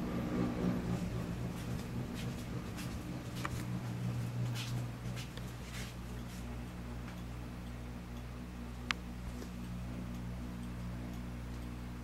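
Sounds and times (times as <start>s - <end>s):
low electrical hum: 0.0s - 12.0s
strobe light ticks: 3.4s - 12.0s.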